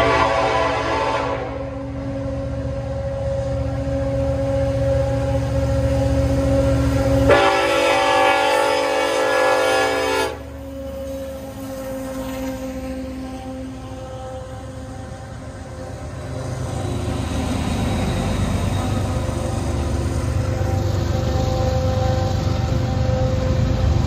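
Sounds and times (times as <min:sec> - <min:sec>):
locomotive horn blast: 0:00.0 - 0:01.9, 0:07.2 - 0:10.8, 0:12.5 - 0:16.0
diesel locomotive engine rumble: 0:00.0 - 0:24.0.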